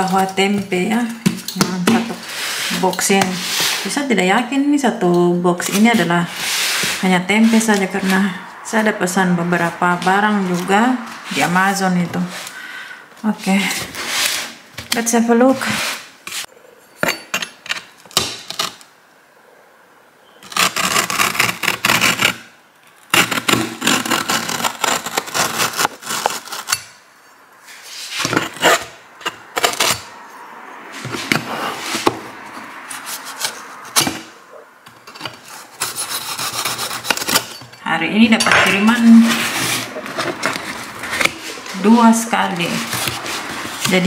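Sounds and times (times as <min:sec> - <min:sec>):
cardboard scraping and rubbing: 0:00.0 - 0:04.1, 0:05.6 - 0:09.0, 0:09.6 - 0:12.6, 0:13.4 - 0:16.5, 0:23.1 - 0:26.9, 0:27.6 - 0:30.1, 0:30.9 - 0:37.6, 0:38.7 - 0:44.0.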